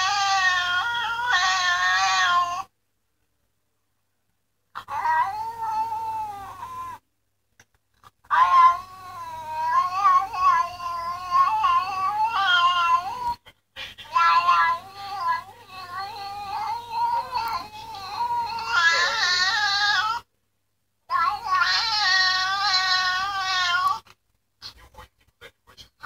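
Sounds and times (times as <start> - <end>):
cat meowing with wavering pitch: 4.8 - 7.0, 8.3 - 13.4, 14.1 - 20.2.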